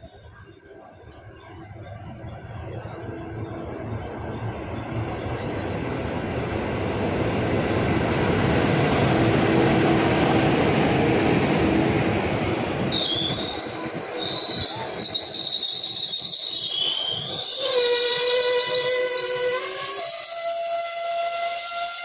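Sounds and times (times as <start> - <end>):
train wheels rumbling on rails: 1.0 - 21.8
metallic wheel squeals: 12.9 - 22.0.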